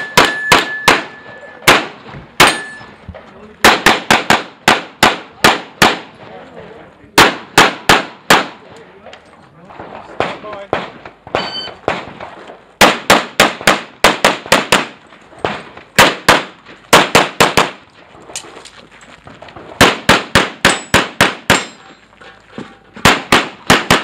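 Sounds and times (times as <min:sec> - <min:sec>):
pistol shots: 0:00.0 - 0:02.8, 0:03.6 - 0:06.2, 0:07.2 - 0:08.6, 0:09.8 - 0:17.8, 0:19.8 - 0:21.8, 0:23.0 - 0:24.0.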